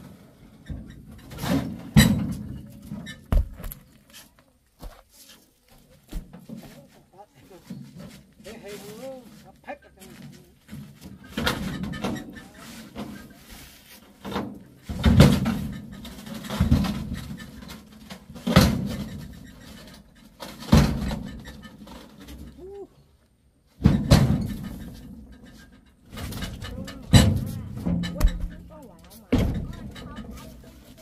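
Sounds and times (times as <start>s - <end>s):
heavy thuds: 0.8s - 3.9s, 26.1s - 30.6s.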